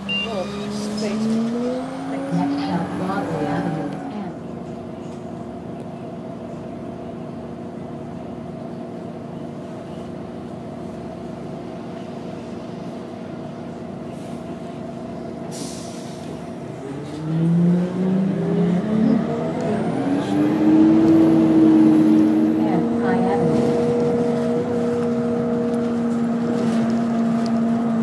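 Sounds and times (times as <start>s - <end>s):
bus engine revving: 0.0s - 5.7s, 14.5s - 28.0s
bus engine idling: 0.0s - 28.0s
air brake hiss: 15.5s - 16.4s.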